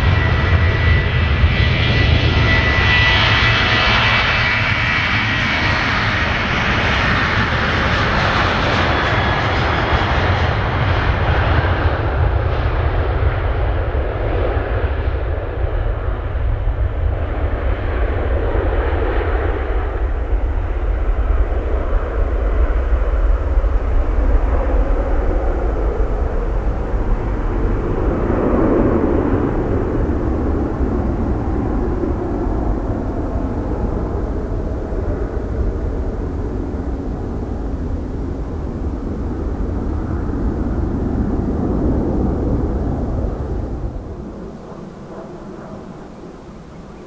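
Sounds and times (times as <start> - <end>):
jet engines rumbling: 0.0 - 47.0.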